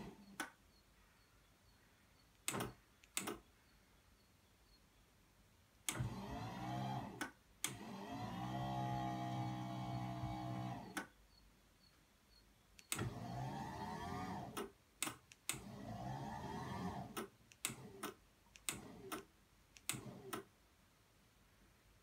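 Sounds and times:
sharp clicks: 2.3 - 3.5, 12.8 - 13.2, 14.6 - 15.7, 17.1 - 20.5
lift motor humming and whining: 6.0 - 11.0.

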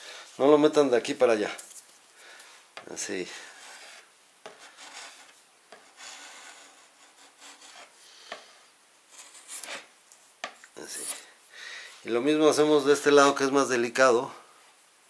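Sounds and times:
chisel scraping wood: 3.6 - 8.5, 9.1 - 9.9, 10.9 - 11.3.

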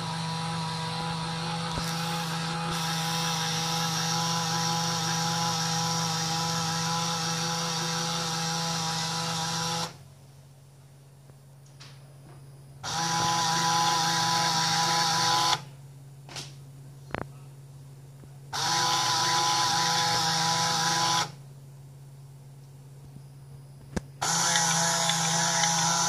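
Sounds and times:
motor and gearbox whining: 0.0 - 10.0, 12.8 - 15.6, 18.6 - 21.4, 24.2 - 26.0.

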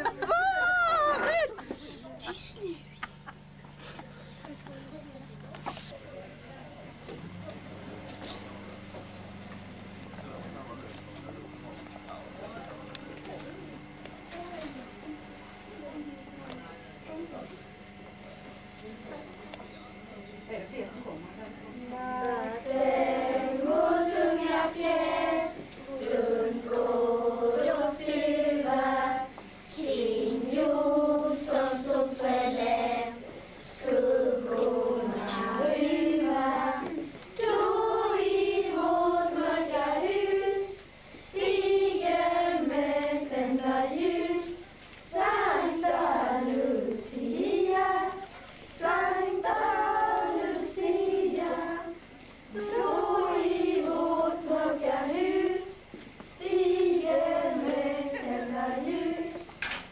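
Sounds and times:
children's choir singing: 21.9 - 59.8.

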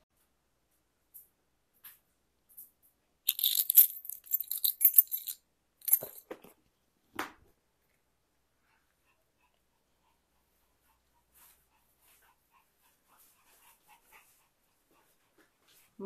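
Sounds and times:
rustling and jingling: 3.3 - 6.4.

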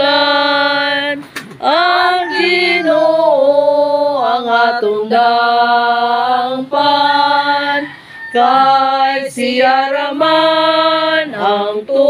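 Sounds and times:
women singing a hymn: 0.0 - 12.0.

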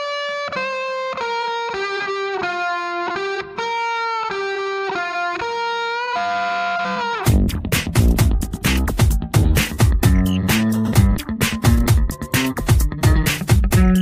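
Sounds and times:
held electric guitar notes: 0.0 - 14.0
music beat: 7.0 - 14.0.

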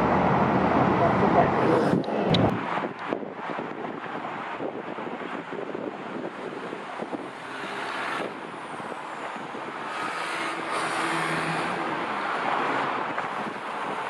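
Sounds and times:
electric train rumbling: 0.0 - 14.0.

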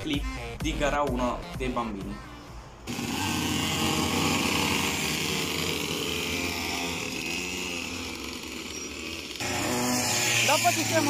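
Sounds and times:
small two-stroke engines buzzing: 2.8 - 11.0.

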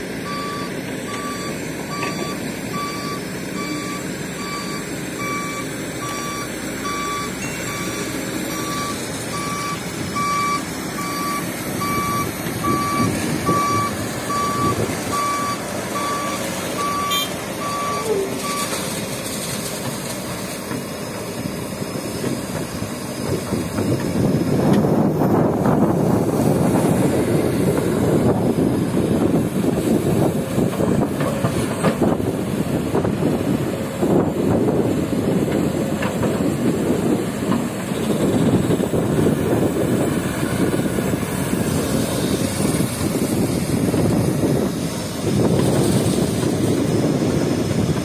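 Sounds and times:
diesel engine running: 0.0 - 48.0
truck reversing alarm beeping: 0.2 - 19.0.

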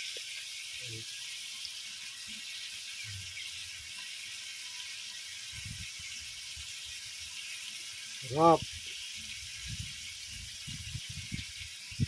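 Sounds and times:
meat sizzling in pan: 0.0 - 12.0.

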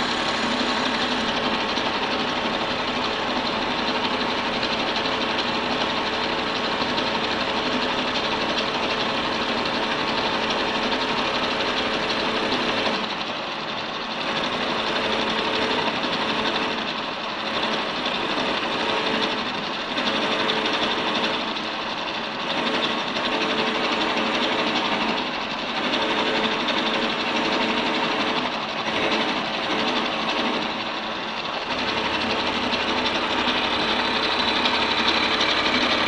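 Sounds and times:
tonal machine hum: 0.0 - 12.8, 28.3 - 36.0
milling machine cutting metal: 0.0 - 36.0.

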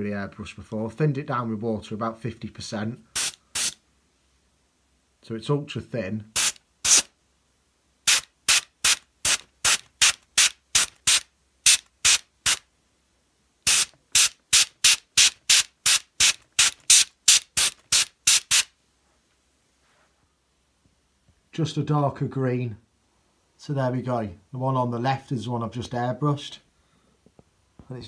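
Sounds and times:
airbrush spraying in pulses: 3.1 - 3.8, 6.3 - 7.1, 8.0 - 12.7, 13.6 - 18.7.

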